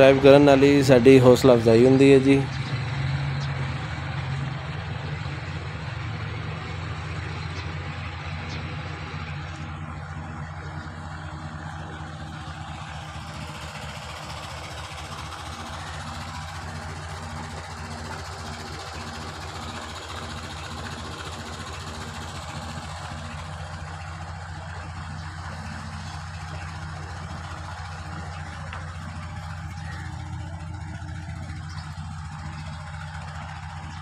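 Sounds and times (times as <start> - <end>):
diesel engine running steadily: 0.0 - 34.0.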